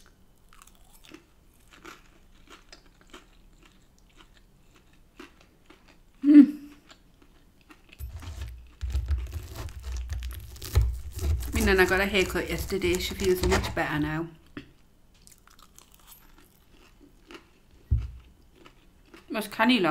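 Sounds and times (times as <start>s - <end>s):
close-up chewing: 0.5s - 13.6s, 14.4s - 19.3s
knife and fork scraping board: 8.0s - 14.1s.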